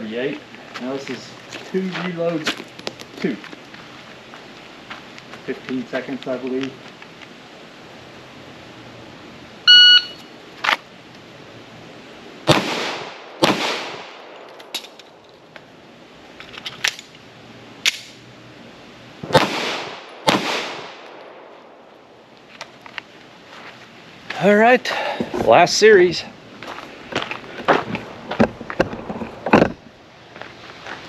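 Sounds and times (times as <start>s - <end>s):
shot timer beep: 9.7s - 10.3s
pistol shots: 12.5s - 14.4s, 19.3s - 21.2s
magazine reload clicks: 17.8s - 18.2s.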